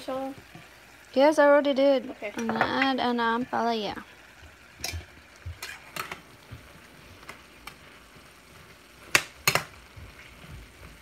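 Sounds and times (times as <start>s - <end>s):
faint sizzle: 0.0s - 11.0s
spatula stirring vegetables in pan: 0.0s - 11.0s
spatula clicks and scrapes on pan: 4.8s - 6.2s, 9.0s - 9.8s.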